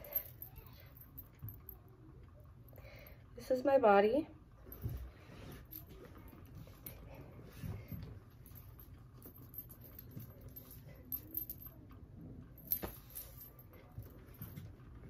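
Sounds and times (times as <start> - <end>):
metal bracelets jingling: 8.4 - 11.8.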